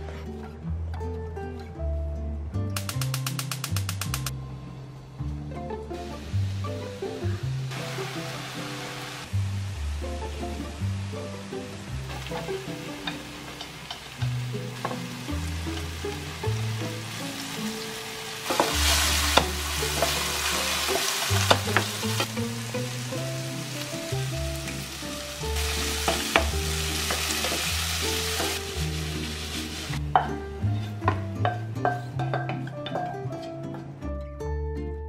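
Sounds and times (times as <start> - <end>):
soft background music: 0.0 - 35.0
spatula clicking on pan: 2.8 - 4.3
mushrooms sizzling in oil: 6.0 - 32.4.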